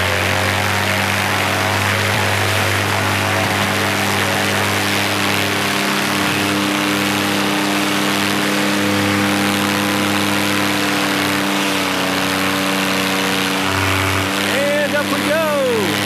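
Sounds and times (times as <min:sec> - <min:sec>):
paramotor engine and propeller: 0:00.0 - 0:16.0.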